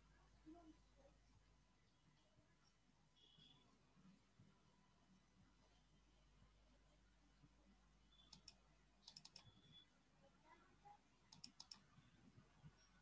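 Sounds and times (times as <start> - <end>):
faint computer mouse clicks: 8.2 - 9.6, 11.3 - 11.9.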